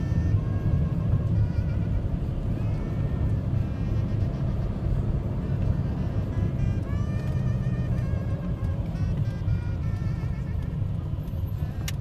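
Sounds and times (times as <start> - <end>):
car interior rumble: 0.0 - 12.0.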